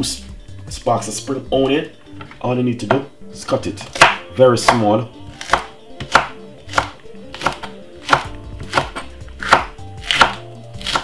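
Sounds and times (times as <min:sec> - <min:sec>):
knife chopping on wooden board: 0:03.8 - 0:11.0.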